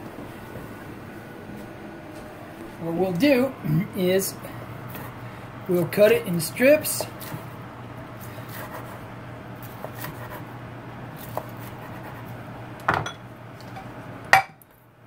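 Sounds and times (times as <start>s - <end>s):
knife cutting crunchy food: 9.6s - 10.5s, 11.2s - 12.3s.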